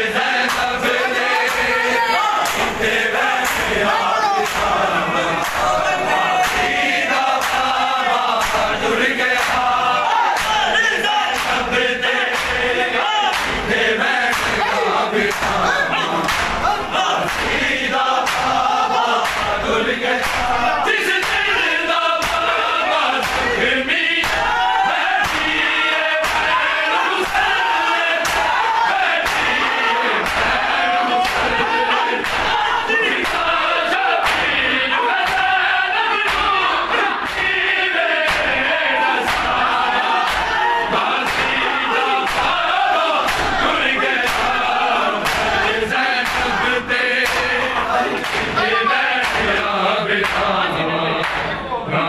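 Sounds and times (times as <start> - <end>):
men chanting a lament in chorus: 0.0 - 52.0
hands slapping bare chests: 2.4 - 3.8, 4.4 - 4.8, 5.4 - 5.8, 6.4 - 8.8, 9.4 - 9.7, 10.3 - 12.6, 13.3 - 13.7, 14.3 - 14.6, 15.3 - 15.6, 16.2 - 17.6, 18.2 - 18.6, 19.2 - 19.6, 20.2 - 21.6, 22.2 - 22.6, 23.2 - 23.6, 24.2 - 26.6, 27.2 - 28.6, 29.2 - 29.6, 30.2 - 31.6, 32.2 - 33.6, 34.2 - 34.6, 35.2 - 35.5, 36.2 - 37.6, 38.2 - 47.6, 48.2 - 48.6, 49.2 - 49.6, 50.2 - 50.5.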